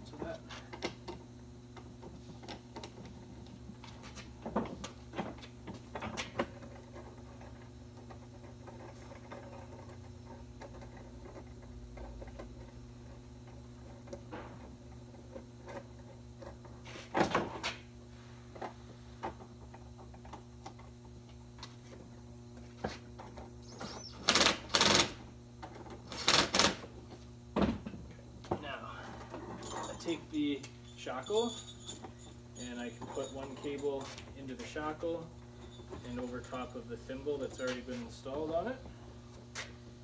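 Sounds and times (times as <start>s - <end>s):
steady low hum: 0.0s - 40.0s
wire rope clicking and clinking: 29.6s - 34.1s.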